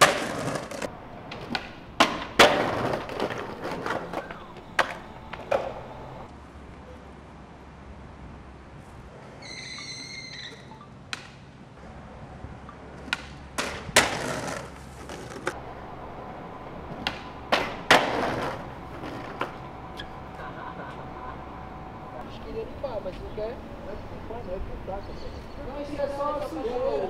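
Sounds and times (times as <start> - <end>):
skateboard slamming onto ground: 0.0 - 6.2, 13.1 - 15.6, 16.9 - 19.6
skateboard clacks: 0.0 - 6.3, 12.7 - 22.1
skateboard grinding metal handrail: 0.0 - 6.3, 13.6 - 22.1.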